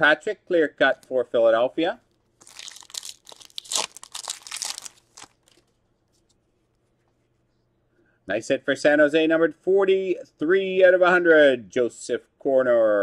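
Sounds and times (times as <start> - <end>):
cards being handled: 2.1 - 7.2
foil wrapper crinkling and tearing: 2.4 - 5.8.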